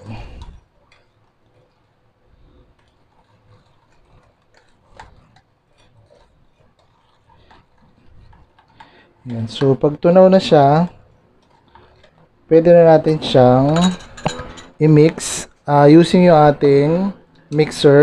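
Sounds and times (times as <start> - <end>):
spoon scraping ceramic bowl: 12.8 - 15.3.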